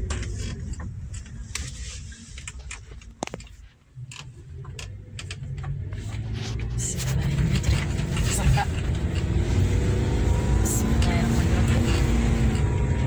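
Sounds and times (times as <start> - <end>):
clicks and rattles: 0.0 - 9.4
car cabin rumble: 0.0 - 13.0.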